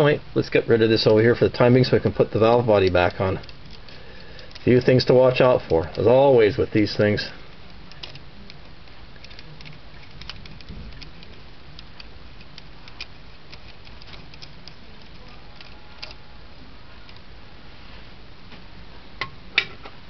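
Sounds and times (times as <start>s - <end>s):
steady low hum: 0.0s - 20.0s
small metal parts clicking: 2.4s - 16.3s.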